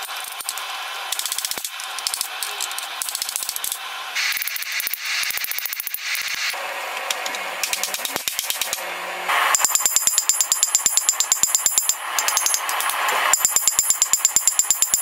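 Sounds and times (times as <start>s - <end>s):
hammer striking steel on anvil: 9.5s - 15.0s.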